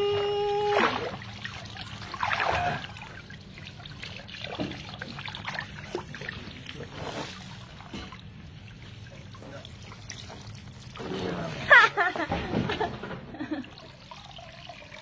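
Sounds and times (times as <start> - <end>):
water splashing in a pool: 0.0 - 15.0.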